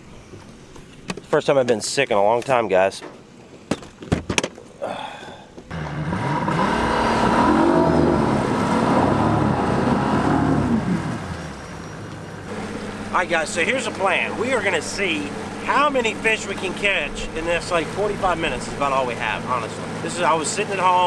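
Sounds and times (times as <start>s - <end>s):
outboard motor revving: 5.7s - 21.0s.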